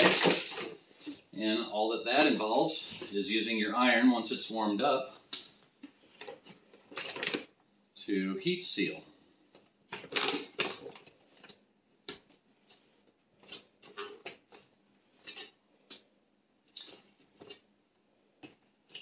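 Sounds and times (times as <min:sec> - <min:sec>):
foil bag crinkling: 0:09.9 - 0:11.5.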